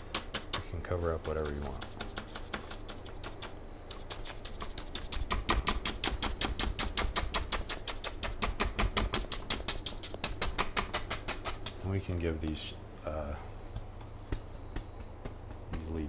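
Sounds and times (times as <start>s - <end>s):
paint brush tapping on canvas: 13.7s - 16.0s.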